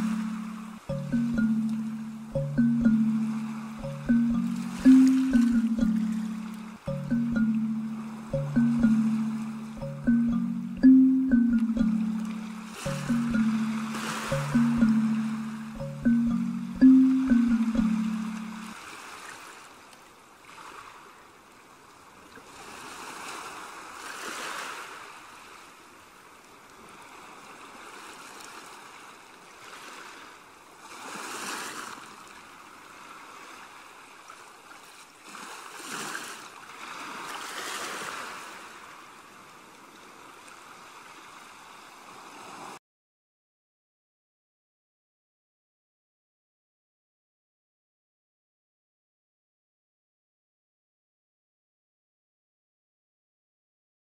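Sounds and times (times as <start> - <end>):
ocean waves breaking: 0.0 - 19.6.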